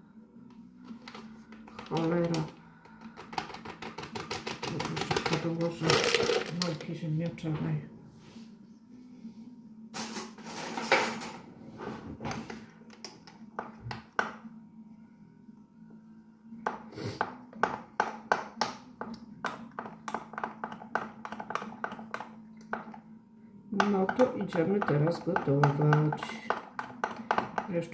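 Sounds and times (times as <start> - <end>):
utensils rustling and clattering: 3.4 - 7.0, 10.0 - 12.6.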